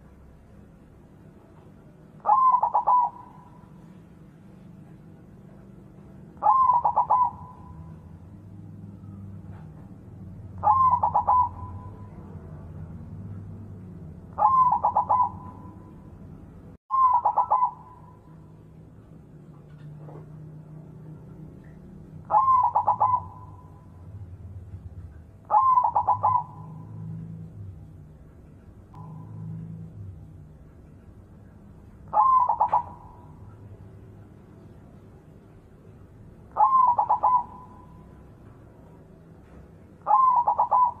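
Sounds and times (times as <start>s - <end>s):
faint low hum: 0.0s - 41.0s
dove cooing: 2.2s - 4.0s, 6.4s - 8.2s, 10.6s - 12.7s, 14.3s - 16.0s, 16.9s - 18.3s, 21.6s - 24.1s, 25.4s - 27.7s, 32.1s - 33.6s, 36.5s - 38.1s, 40.0s - 41.0s.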